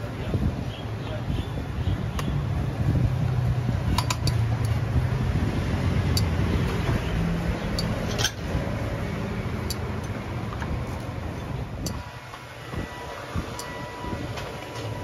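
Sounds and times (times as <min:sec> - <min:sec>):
tongs clicking on metal trays: 0:03.9 - 0:04.8, 0:06.1 - 0:06.4, 0:07.7 - 0:08.4, 0:09.6 - 0:10.2.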